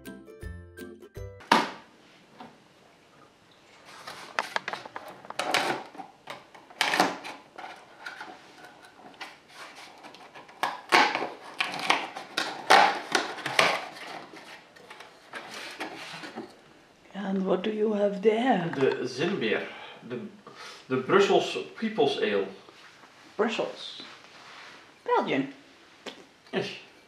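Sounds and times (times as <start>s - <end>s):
cardboard crackling and tearing: 9.3s - 16.5s.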